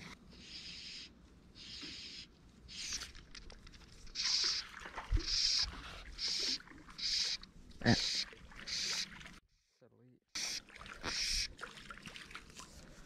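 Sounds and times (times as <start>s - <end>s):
fly line hissing through rod guides: 4.1s - 7.4s.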